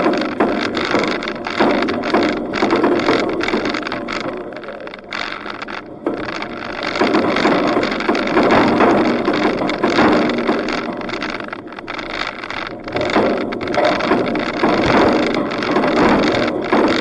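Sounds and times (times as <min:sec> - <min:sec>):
vehicle rattles: 0:00.0 - 0:17.0.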